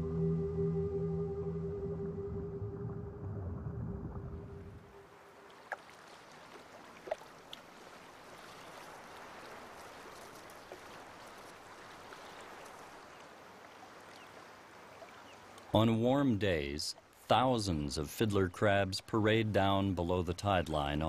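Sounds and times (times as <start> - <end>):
faint water trickle: 4.9 - 15.8.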